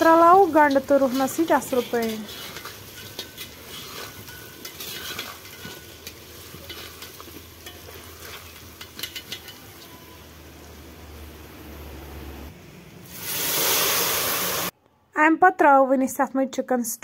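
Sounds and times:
oil sizzling: 0:00.0 - 0:14.8
metal skimmer scraping a pot: 0:00.4 - 0:10.1.

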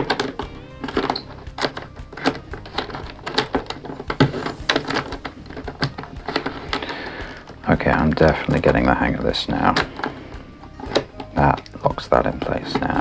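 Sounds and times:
wooden puzzle pieces clicking: 0:00.0 - 0:07.6.

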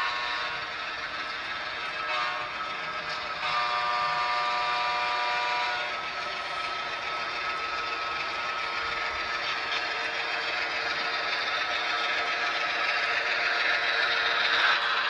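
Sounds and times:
model train horn: 0:00.0 - 0:00.8, 0:01.9 - 0:06.0
engine hum: 0:00.0 - 0:15.0.

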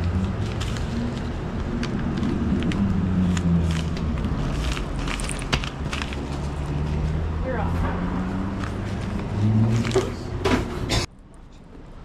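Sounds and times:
paper envelope crinkling: 0:00.1 - 0:07.2.

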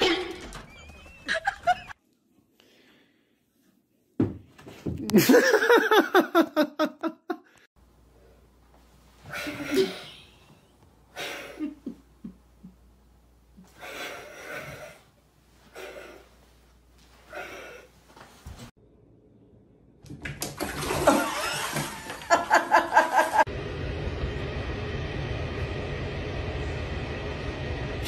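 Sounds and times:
person laughing hard: 0:01.2 - 0:02.0, 0:05.0 - 0:07.5, 0:21.0 - 0:23.5.

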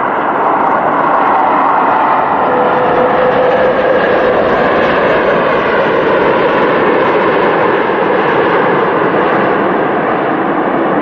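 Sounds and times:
jet engines roaring: 0:00.0 - 0:11.0.

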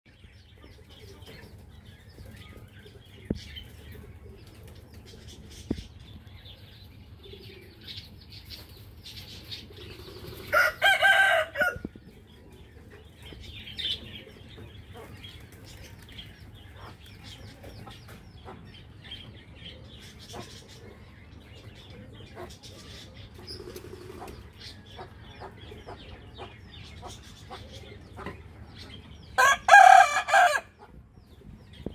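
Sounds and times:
small birds chirping: 0:00.1 - 0:31.9
rooster crowing: 0:10.5 - 0:11.8, 0:29.4 - 0:30.7.

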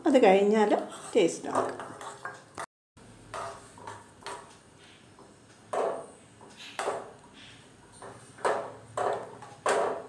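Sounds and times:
metal spoon knocking and scraping pan: 0:00.7 - 0:02.7, 0:03.3 - 0:04.5, 0:05.7 - 0:07.2, 0:07.9 - 0:10.0.

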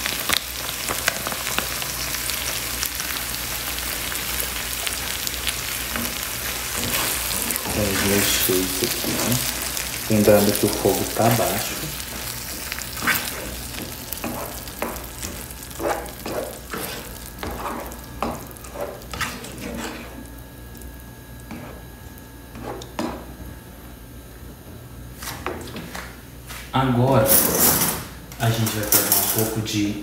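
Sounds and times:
faint sizzle of sauce: 0:00.0 - 0:22.2.

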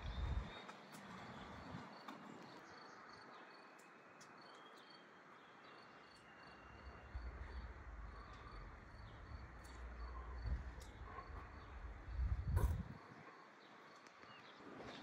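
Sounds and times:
low rumble: 0:07.1 - 0:13.0.

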